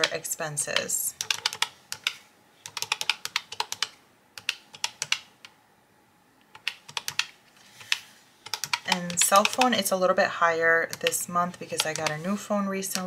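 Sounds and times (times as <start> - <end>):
calculator keys clicking: 0.0 - 5.5, 6.5 - 9.9, 11.8 - 12.2.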